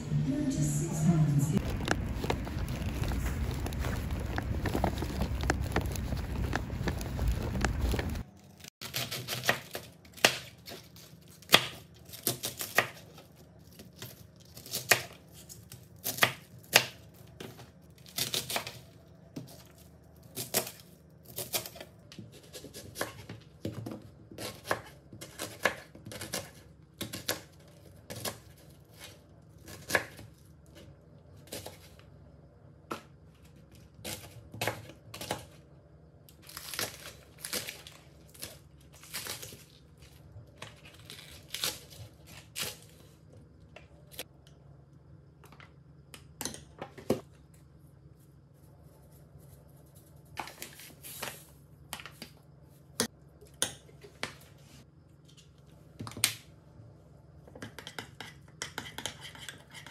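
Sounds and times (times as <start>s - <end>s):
faint room hum: 0.0s - 59.9s.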